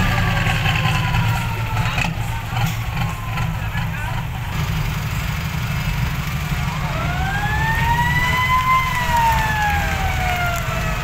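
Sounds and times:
diesel truck rumbling: 0:00.0 - 0:11.0
siren-like whine: 0:06.7 - 0:11.0.

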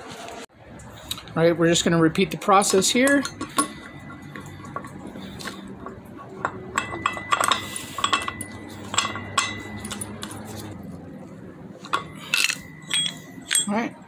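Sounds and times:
low steady hum: 0:00.5 - 0:14.0
nut spinning on threaded rod: 0:01.0 - 0:11.0, 0:11.8 - 0:13.8
metal parts clinking and tapping: 0:02.2 - 0:10.8, 0:11.8 - 0:14.0.

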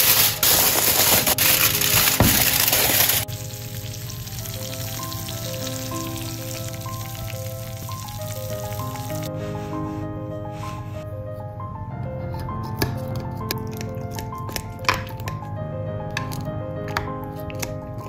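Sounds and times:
aluminium foil crinkling: 0:00.0 - 0:09.3
gentle background music: 0:00.0 - 0:18.0.

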